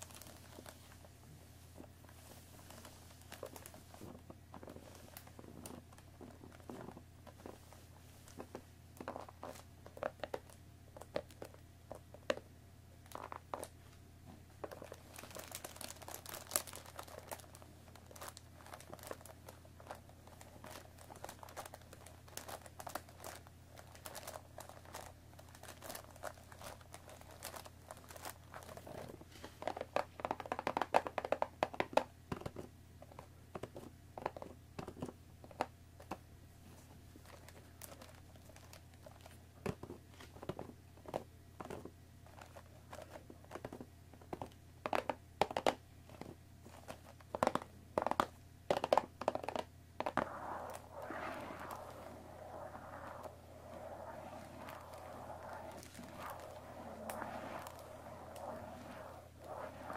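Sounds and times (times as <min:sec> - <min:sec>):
plastic wrap crinkling: 0:00.0 - 0:01.0, 0:14.7 - 0:28.8.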